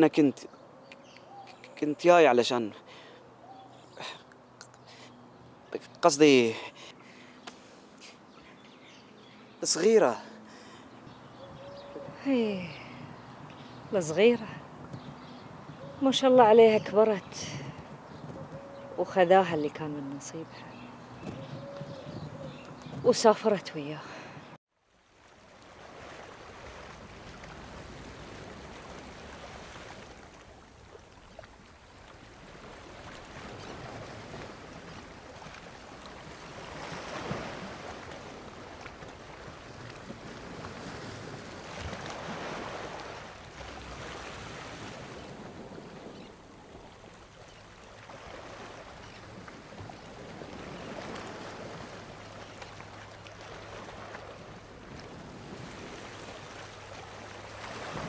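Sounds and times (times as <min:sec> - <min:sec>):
waves washing onto sandy shore: 0:25.0 - 0:58.0.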